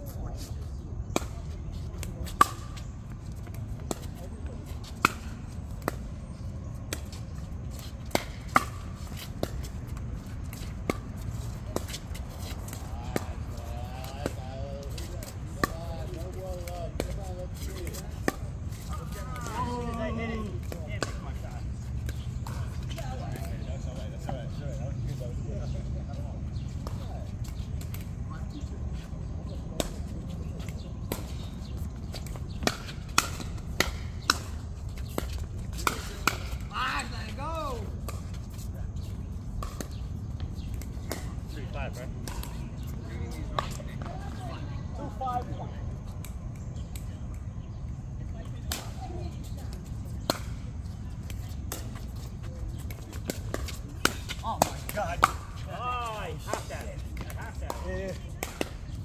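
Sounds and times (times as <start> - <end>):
voices calling out: 0.0 - 59.0
racket hitting ball: 8.0 - 9.8, 32.2 - 36.6.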